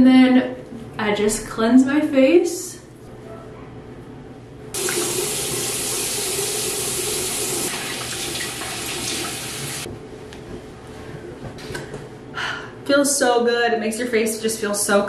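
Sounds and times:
bathroom tap running: 4.8 - 9.9
water splashing on face: 4.8 - 9.9.

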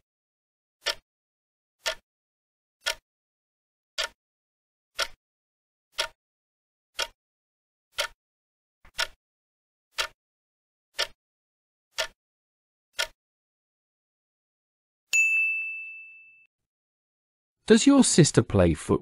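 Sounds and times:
clock ticking: 0.8 - 1.0, 1.8 - 2.0, 2.8 - 3.0, 4.0 - 4.2, 5.0 - 5.2, 5.9 - 6.2, 7.0 - 7.2, 7.9 - 8.2, 8.9 - 9.2, 9.9 - 10.2, 11.0 - 11.2, 11.9 - 12.2, 13.0 - 13.2.

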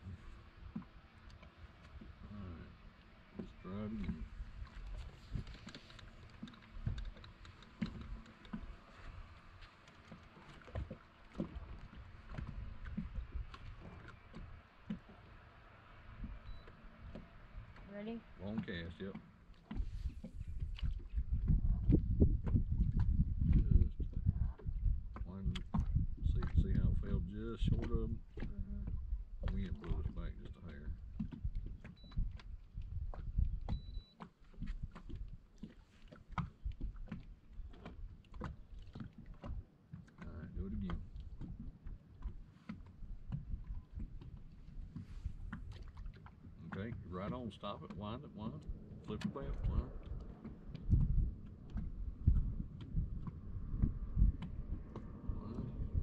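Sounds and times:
small waves lapping against hull: 0.0 - 56.0
wind on microphone: 3.5 - 5.8, 10.7 - 14.6, 19.7 - 34.0, 48.4 - 56.0
fishing gear clicks and knocks: 4.7 - 9.1
low rumble: 15.3 - 19.0, 19.8 - 34.1, 43.1 - 56.0.

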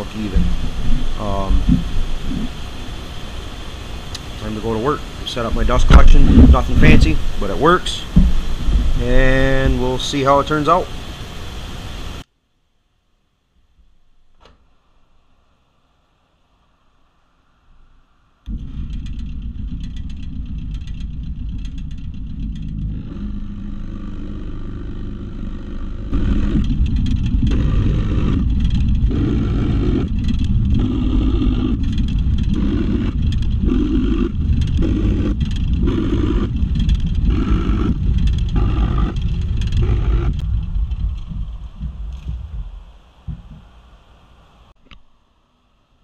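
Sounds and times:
dust collector rumbling: 0.0 - 12.2, 18.5 - 44.8
drill press drilling into wood: 18.5 - 38.0.

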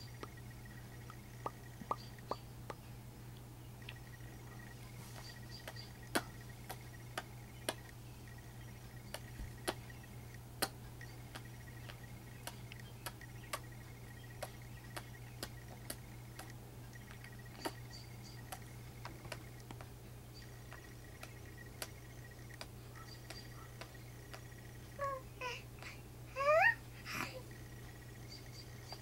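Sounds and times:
low hum: 0.0 - 29.0
sharp clicks: 14.3 - 24.8.

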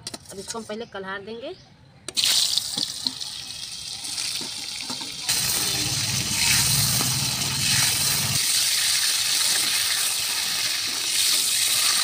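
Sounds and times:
mushrooms sizzling in hot oil: 2.4 - 12.0.

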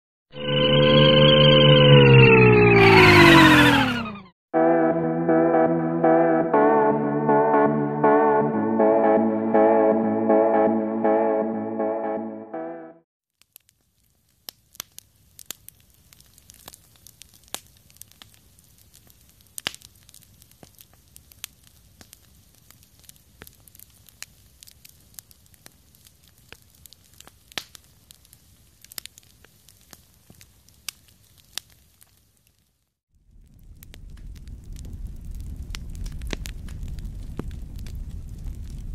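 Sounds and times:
campfire crackling and popping: 13.4 - 38.9.

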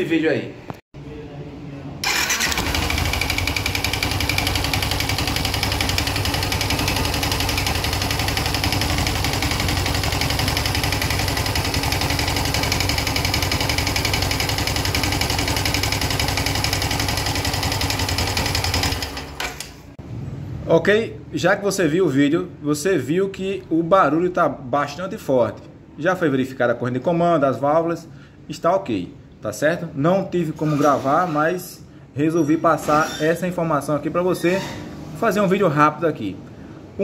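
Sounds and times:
engine knocking clatter: 2.2 - 19.4.

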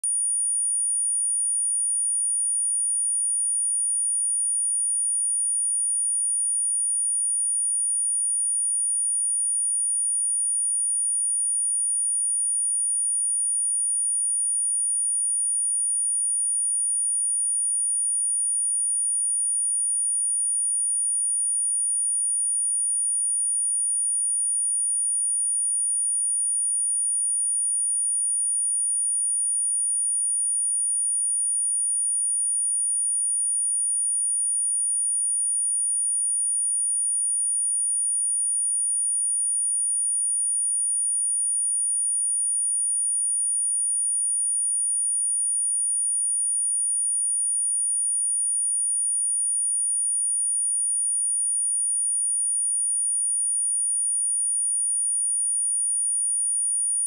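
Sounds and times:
high-pitched sine test tone: 0.0 - 4.5.

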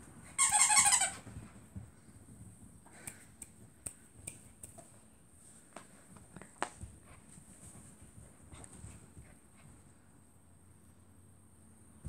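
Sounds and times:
faint sharp clicks and taps: 1.4 - 9.9.

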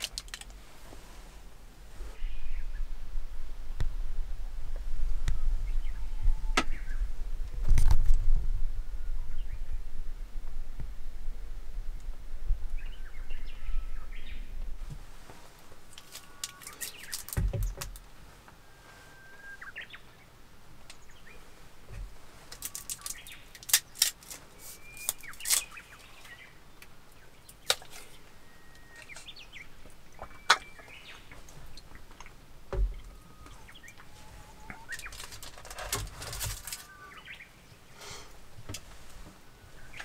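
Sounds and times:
bird chirps: 12.7 - 14.6, 18.6 - 20.3, 24.6 - 32.3, 32.9 - 35.4, 36.7 - 37.8
paper carton and wrapper crackling: 22.5 - 25.7.

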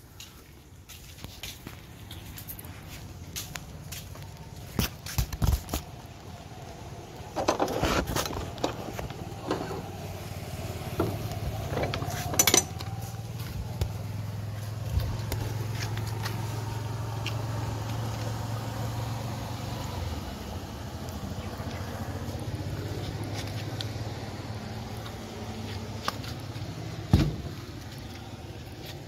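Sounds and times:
engine idling: 5.8 - 29.0.

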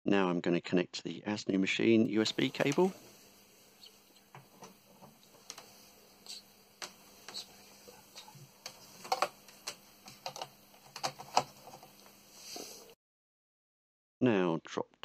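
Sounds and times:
usb cable clicks and taps: 8.6 - 12.1.

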